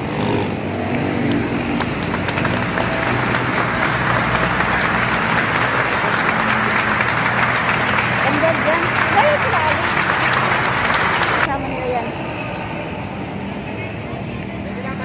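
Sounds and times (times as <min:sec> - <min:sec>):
vehicle engine humming: 0:00.0 - 0:15.0
crackling hiss like applause: 0:01.8 - 0:11.5.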